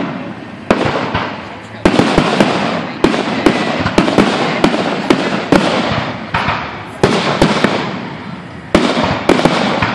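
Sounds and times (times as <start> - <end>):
crackle of firework sparks: 0.0 - 9.9
firework bangs: 0.0 - 9.9.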